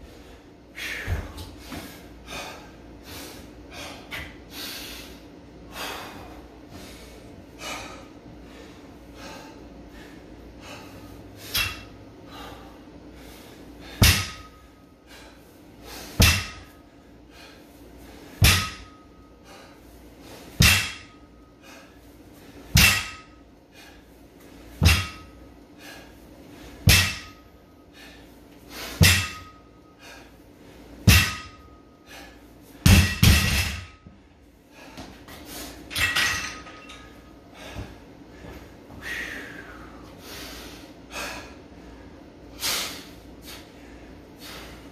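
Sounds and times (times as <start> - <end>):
metallic ring of weight plates: 11.4 - 12.0, 22.8 - 23.4, 29.0 - 29.8, 35.9 - 37.3
barbell thudding on rubber floor: 14.0 - 14.6, 16.2 - 16.7, 18.4 - 19.0, 20.6 - 21.2, 22.7 - 23.4, 24.8 - 25.3, 26.8 - 27.4, 29.0 - 29.6, 31.0 - 31.7, 32.8 - 34.1.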